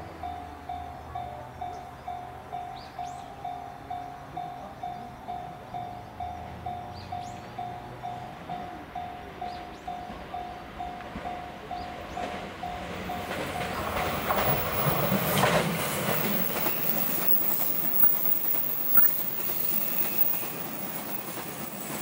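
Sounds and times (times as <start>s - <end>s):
train wheels clattering over rails: 6.6s - 22.0s
level-crossing bell dinging: 16.1s - 21.8s.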